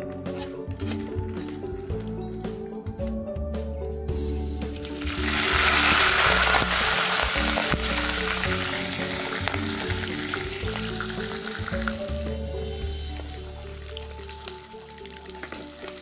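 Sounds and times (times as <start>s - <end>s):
background music: 0.0s - 16.0s
vegetables sizzling in hot oil: 4.8s - 12.0s.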